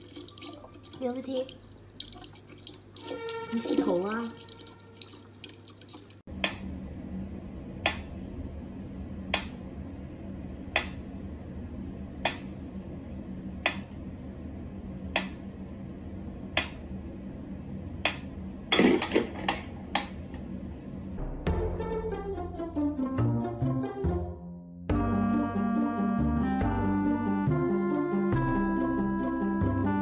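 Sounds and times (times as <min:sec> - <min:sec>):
low steady hum: 0:00.0 - 0:21.4.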